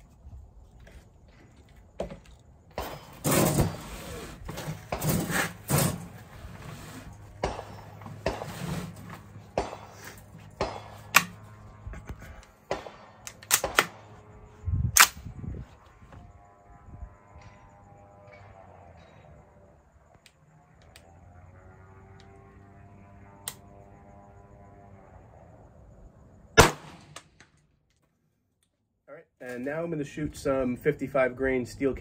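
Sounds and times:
rifle shots with echo: 0:07.4 - 0:08.4, 0:09.5 - 0:10.0, 0:10.6 - 0:11.4, 0:12.6 - 0:14.2, 0:26.6 - 0:27.2.

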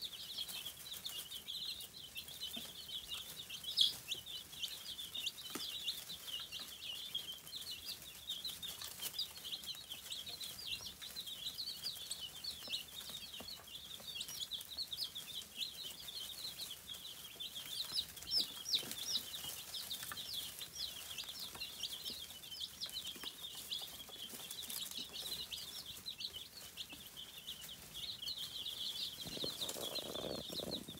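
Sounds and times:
baby chicks peeping: 0:00.0 - 0:30.9.

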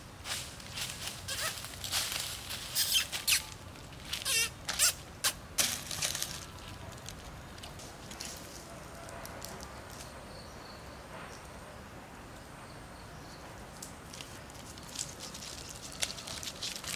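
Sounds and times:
footsteps crunching dry leaves: 0:00.2 - 0:10.1, 0:14.1 - 0:16.9
wavering animal calls: 0:01.3 - 0:01.6.

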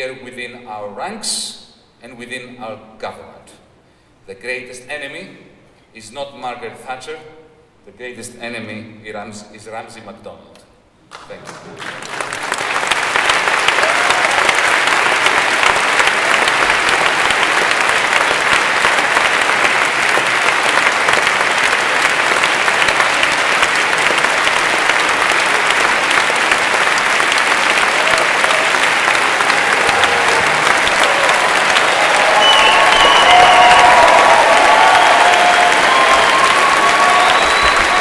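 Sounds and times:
audience applauding: 0:11.1 - 0:38.0.

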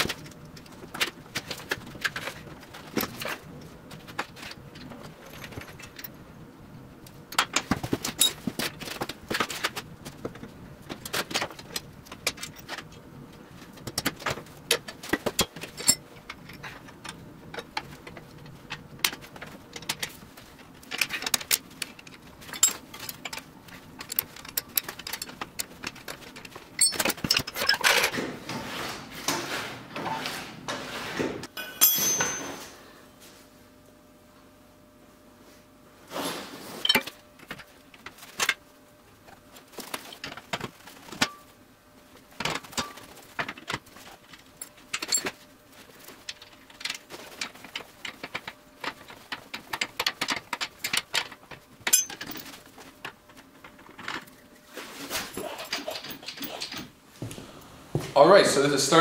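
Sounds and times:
metal tools clinking and knocking: 0:13.9 - 0:20.1, 0:20.9 - 0:28.1, 0:31.6 - 0:32.8, 0:42.4 - 0:45.4, 0:46.2 - 0:52.6.

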